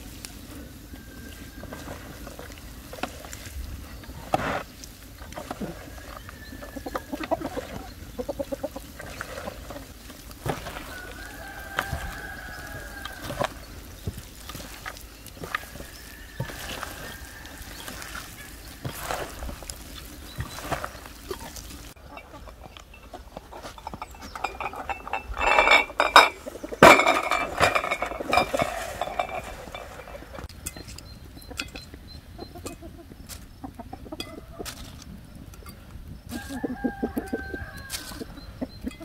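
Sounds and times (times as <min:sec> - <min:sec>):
chickens clucking: 0:00.0 - 0:39.0
glass jars clinking on metal tray: 0:22.0 - 0:30.8.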